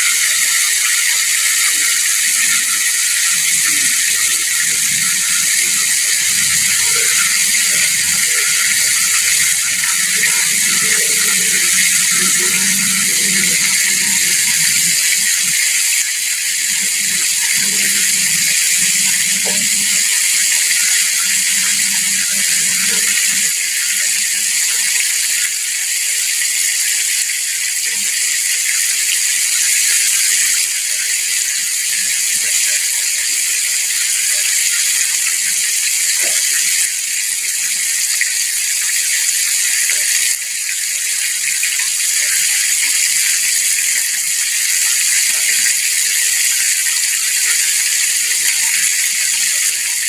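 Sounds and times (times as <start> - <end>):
oil sizzling deep-frying: 0.0 - 50.0.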